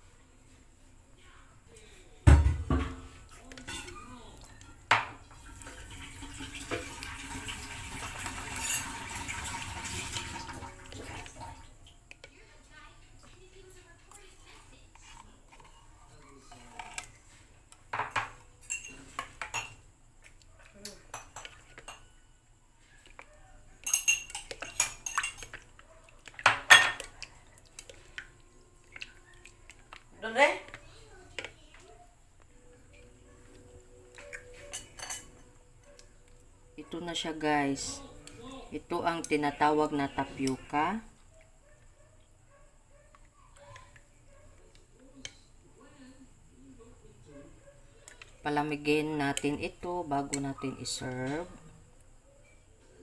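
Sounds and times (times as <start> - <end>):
spoon stirring in glass bowl: 3.1 - 41.9, 47.5 - 51.7
spatulas clattering against glass bowl: 3.5 - 7.1, 8.3 - 11.4, 17.9 - 19.8, 20.8 - 22.1, 23.8 - 28.2, 34.1 - 35.5
dessert sloshing in milk: 24.4 - 31.6.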